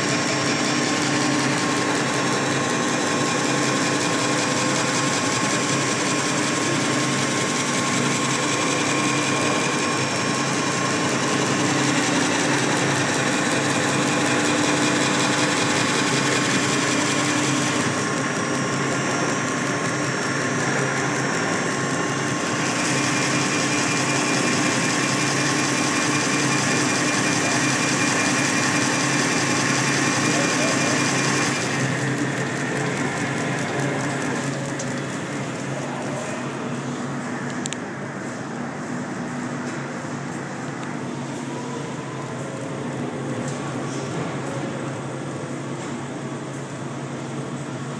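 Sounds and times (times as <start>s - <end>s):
belt-polishing machine whirring: 0.0s - 43.6s.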